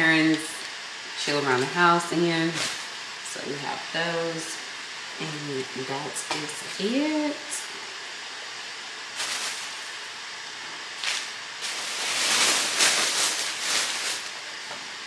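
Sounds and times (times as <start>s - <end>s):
plastic bag rustling and crinkling: 9.2s - 10.1s, 11.0s - 14.7s.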